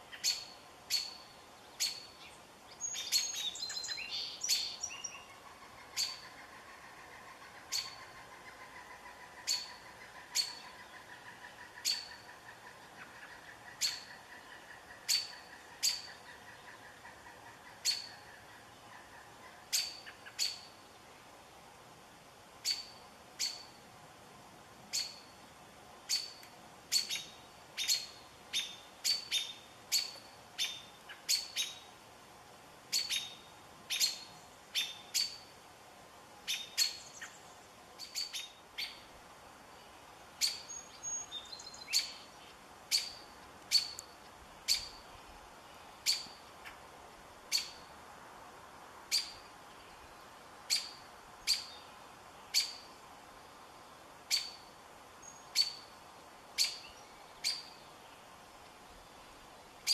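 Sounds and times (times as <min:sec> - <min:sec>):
faint background hiss: 0:00.0 - 0:59.9
songbird sharp chip calls: 0:00.1 - 0:20.8, 0:22.6 - 0:23.8, 0:24.9 - 0:25.4, 0:26.0 - 0:31.9, 0:32.9 - 0:35.5, 0:36.4 - 0:39.1, 0:40.4 - 0:46.8, 0:47.5 - 0:47.9, 0:49.1 - 0:49.5, 0:50.7 - 0:52.9, 0:54.3 - 0:56.0, 0:56.6 - 0:57.9.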